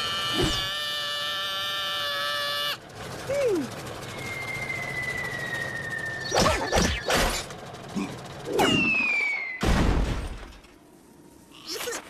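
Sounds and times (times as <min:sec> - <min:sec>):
cartoon falling whistle: 0:08.6 - 0:09.6.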